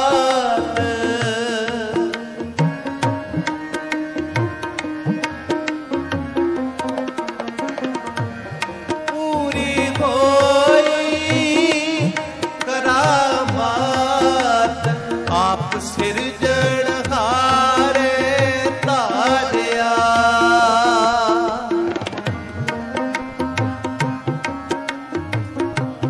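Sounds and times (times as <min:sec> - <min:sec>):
person singing devotional melody: 0:00.0 - 0:26.0
tabla playing steady rhythm: 0:00.0 - 0:26.0.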